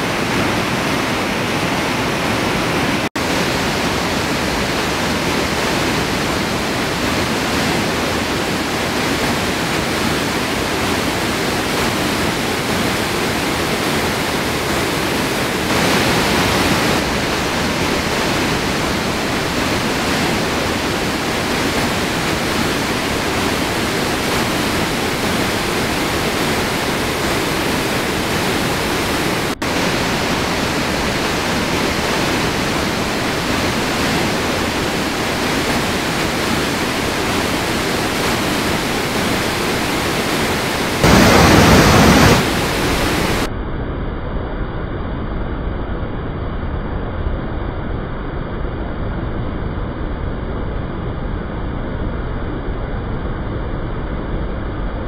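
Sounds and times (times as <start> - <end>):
waterfall rushing: 0.0 - 43.5.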